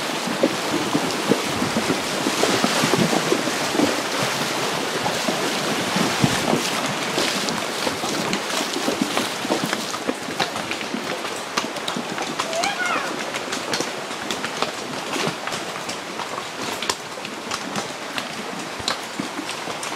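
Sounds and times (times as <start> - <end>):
wind buffeting microphone: 0.0 - 9.5
horses splashing through water: 0.0 - 19.9
rushing stream water: 0.0 - 19.9.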